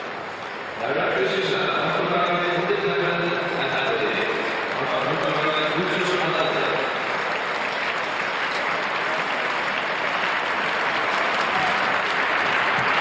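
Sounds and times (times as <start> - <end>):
crowd applauding: 4.0 - 13.0.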